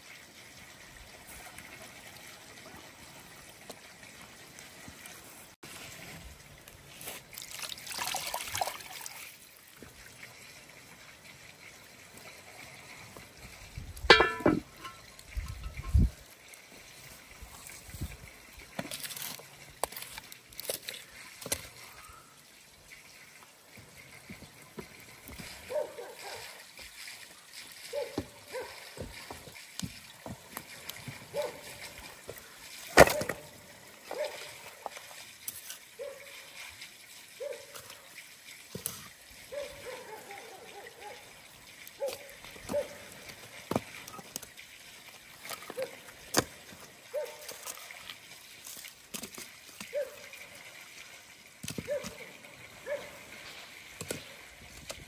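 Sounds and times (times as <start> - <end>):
pot gurgling as it boils: 0.0 - 26.0, 41.0 - 47.1
log knocking onto fire: 14.1 - 15.0.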